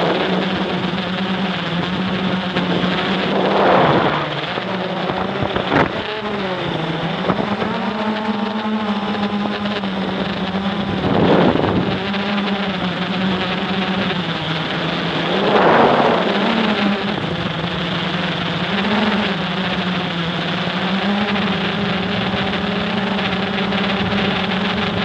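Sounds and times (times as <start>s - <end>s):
quadcopter propellers buzzing: 0.0s - 25.0s
wind gusts on microphone: 1.8s - 6.1s, 10.8s - 12.0s, 14.5s - 17.7s.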